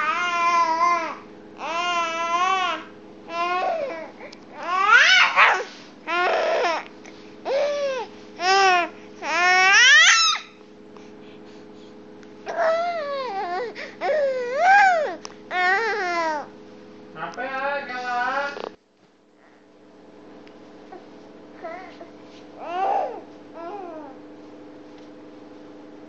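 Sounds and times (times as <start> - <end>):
baby crying: 0.0 - 6.9, 7.5 - 10.6, 12.5 - 16.5, 22.6 - 24.2
faint steady hum: 0.0 - 26.0.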